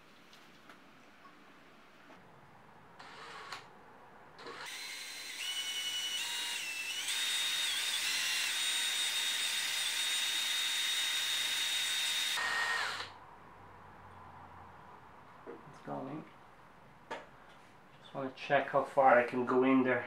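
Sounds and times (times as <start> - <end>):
cordless drill whining: 4.4 - 13.2.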